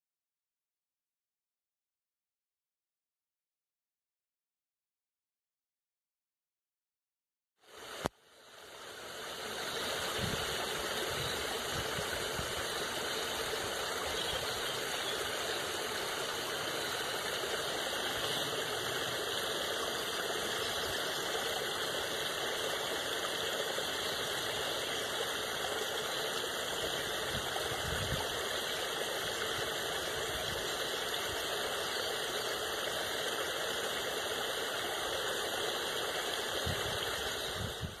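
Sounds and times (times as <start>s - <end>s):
water spilling over a weir: 9.0s - 37.9s.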